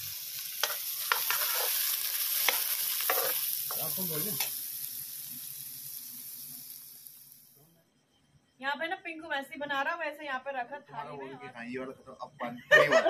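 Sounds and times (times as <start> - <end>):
onions sizzling in hot oil: 0.0 - 7.6
ladle scraping and stirring pan: 0.6 - 3.9.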